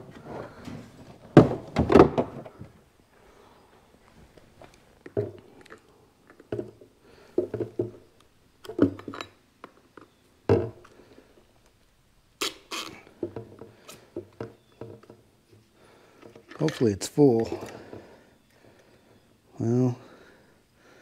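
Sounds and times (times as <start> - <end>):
knocks and thumps of handling: 0.0 - 2.8, 4.6 - 11.0, 13.1 - 18.1.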